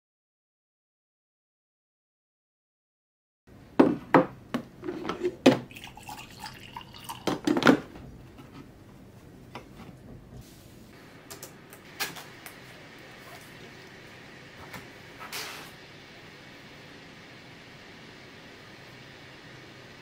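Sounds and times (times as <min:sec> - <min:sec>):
coffee maker water dripping: 0:05.7 - 0:07.5.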